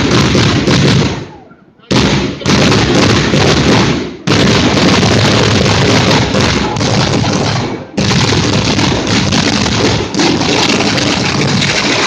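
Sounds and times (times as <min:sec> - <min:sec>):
fireworks barrage roaring: 0:00.0 - 0:12.0.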